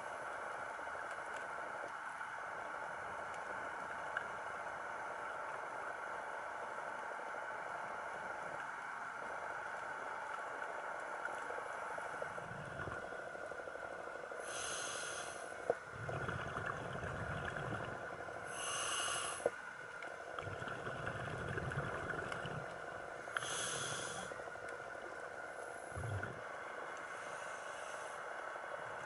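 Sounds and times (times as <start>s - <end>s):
bubbling exhaled air: 12.4s - 13.0s, 15.9s - 19.5s, 20.4s - 24.4s, 25.8s - 26.4s
regulator hissing inhalations: 14.4s - 15.6s, 18.5s - 19.6s, 23.3s - 24.4s.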